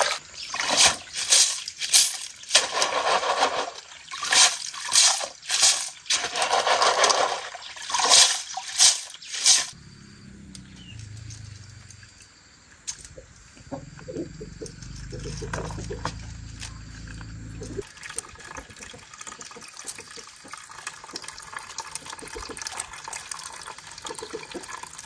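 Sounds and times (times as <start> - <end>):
water splashing in plastic basin: 2.5 - 9.8.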